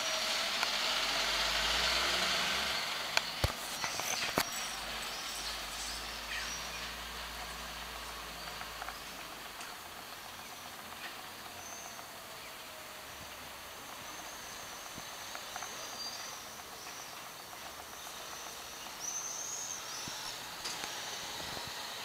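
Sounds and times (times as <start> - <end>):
outdoor background hiss: 0.0 - 22.0
small birds chirping: 3.2 - 20.6.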